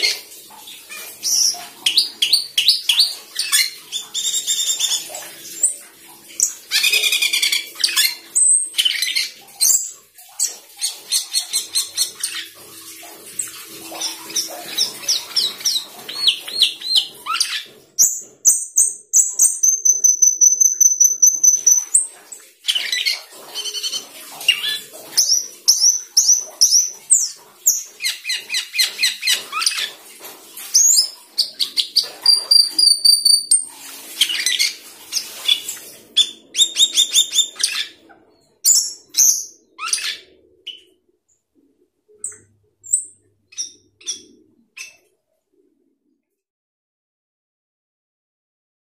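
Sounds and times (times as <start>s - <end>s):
starling singing: 13.9s - 29.9s, 34.2s - 41.0s, 42.2s - 45.0s.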